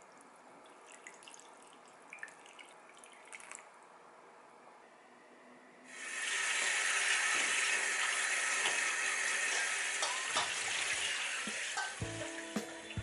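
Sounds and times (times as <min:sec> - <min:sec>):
kitchen tap running into sink: 0:06.0 - 0:12.2.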